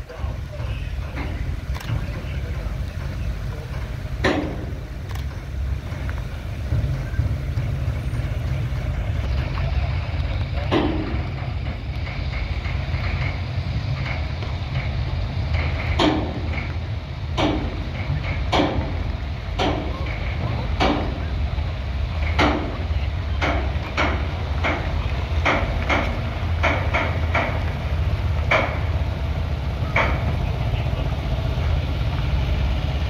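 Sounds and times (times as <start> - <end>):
heavy truck rumbling: 0.0 - 33.0
sharp knocks or clatters: 10.6 - 16.8, 23.4 - 27.8.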